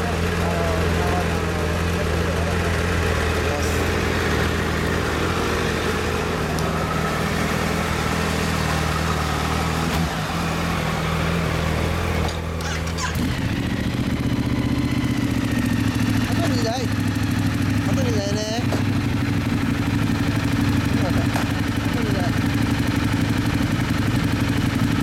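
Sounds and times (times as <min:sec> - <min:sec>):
motorcycle engines idling: 0:00.0 - 0:25.0.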